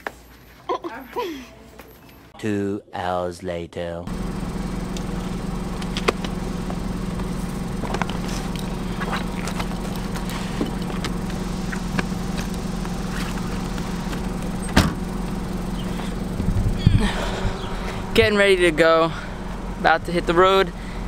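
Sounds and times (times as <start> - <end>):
steady low hum: 4.1 - 21.0
car trunk lid slamming: 14.5 - 15.3.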